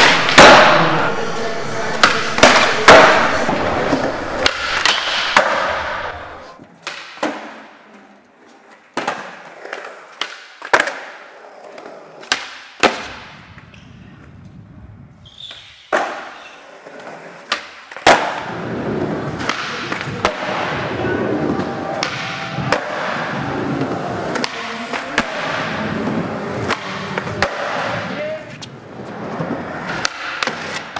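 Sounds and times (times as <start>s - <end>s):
skateboard clacks: 0.0s - 1.2s, 15.9s - 30.9s
skateboard wheels rolling on concrete: 0.0s - 30.9s.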